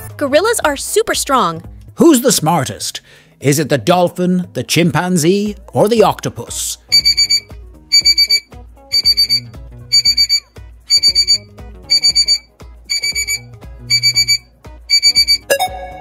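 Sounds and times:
light background music with bass: 0:00.0 - 0:16.0
quick high beeps: 0:06.9 - 0:16.0.

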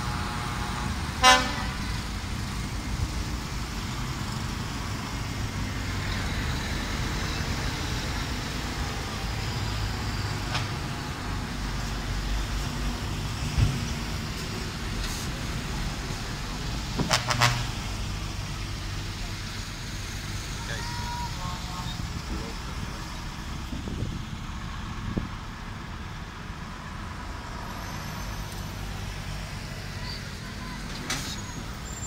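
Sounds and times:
truck horn toots: 0:00.0 - 0:02.0, 0:17.0 - 0:17.8
truck engines rumbling: 0:00.0 - 0:32.0.

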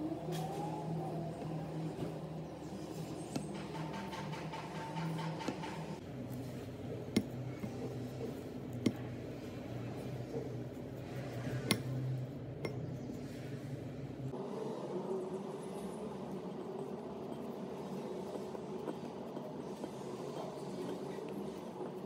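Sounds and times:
steady low hum: 0:00.0 - 0:22.0
spatula stirring dough in bowl: 0:01.4 - 0:13.9.

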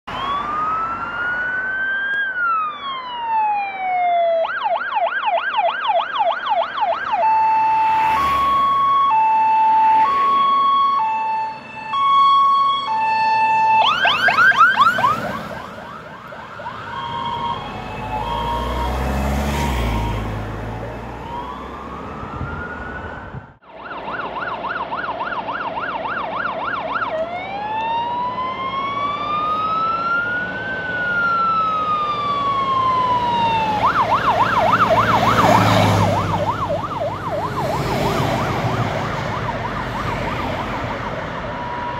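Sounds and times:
fire engine siren: 0:00.0 - 0:41.9
truck rumbling by: 0:06.7 - 0:25.5, 0:27.4 - 0:41.9.

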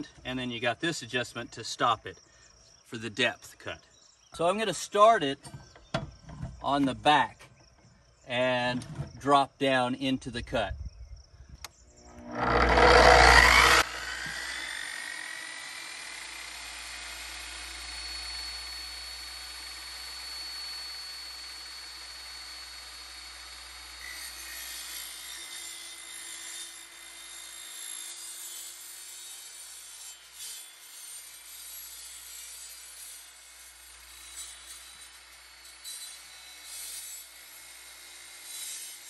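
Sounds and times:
rough scraping noise: 0:12.0 - 0:14.9
concrete saw cutting steel: 0:12.0 - 0:39.0.

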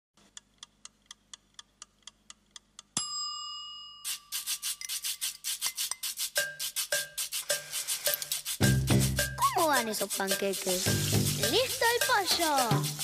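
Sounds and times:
timer bell ding: 0:03.0 - 0:04.0
shaker-like percussion music: 0:04.0 - 0:13.0
kitchen timer ticking: 0:05.9 - 0:13.0.

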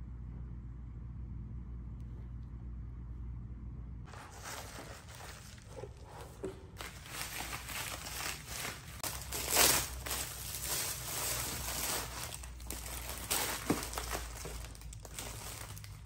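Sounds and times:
low hum: 0:00.0 - 0:16.0
bubble wrap crinkling: 0:04.1 - 0:16.0.

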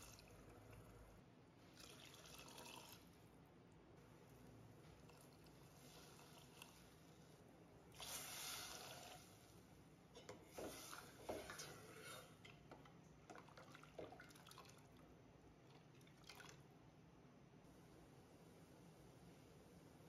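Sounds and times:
ladle stirring liquid: 0:00.0 - 0:03.4, 0:04.1 - 0:16.7
liquid splashing trickle: 0:01.6 - 0:03.3, 0:13.3 - 0:16.7.

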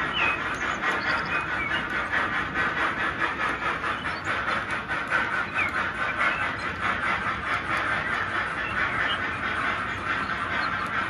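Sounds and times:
model train wheels rattling on rails: 0:00.0 - 0:11.0.

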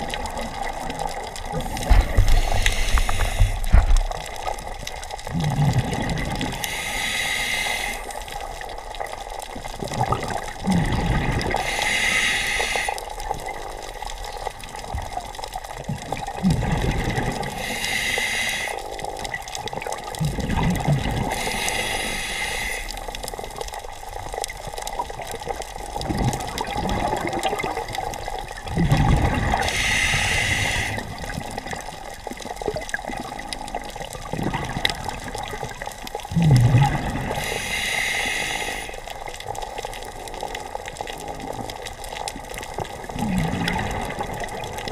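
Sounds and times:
exhaled bubbles rumbling: 0:00.0 - 0:07.2, 0:08.1 - 0:18.1, 0:18.8 - 0:44.9
hissing regulator inhales: 0:02.2 - 0:03.8, 0:06.6 - 0:08.3, 0:11.6 - 0:13.0, 0:17.6 - 0:18.8, 0:21.3 - 0:22.9, 0:29.6 - 0:31.1, 0:37.4 - 0:39.0.

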